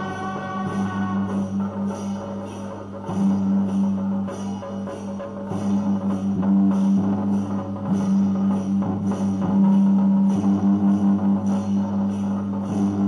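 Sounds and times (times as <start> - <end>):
loud held low tone: 0.0 - 2.1
drums and hand percussion: 0.0 - 13.0.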